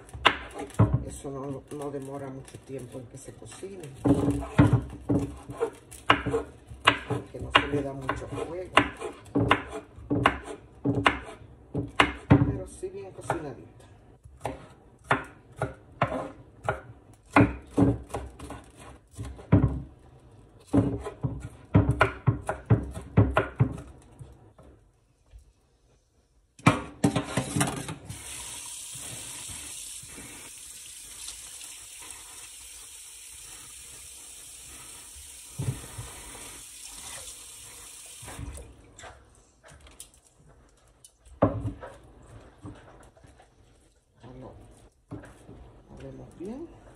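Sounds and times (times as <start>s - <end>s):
knife chopping on wooden board: 4.0s - 12.5s, 14.2s - 19.9s, 20.7s - 23.9s
tap running into sink: 35.4s - 37.5s.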